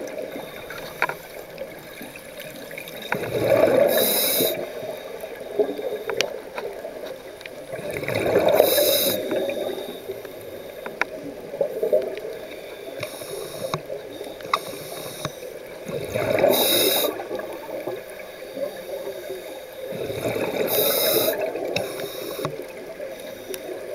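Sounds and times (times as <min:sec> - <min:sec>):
regulator hiss: 0:03.8 - 0:05.0, 0:08.6 - 0:10.9, 0:12.7 - 0:15.7, 0:16.4 - 0:17.5, 0:20.6 - 0:23.9.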